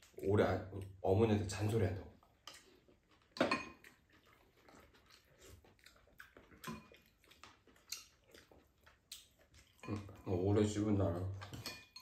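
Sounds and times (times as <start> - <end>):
chopsticks tapping ceramic bowls: 11.4 - 12.0.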